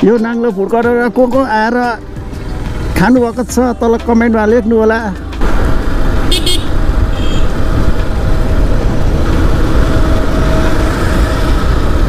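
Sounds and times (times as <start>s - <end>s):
motorcycle engine running: 1.5s - 12.0s
wind buffeting microphone: 5.4s - 12.0s.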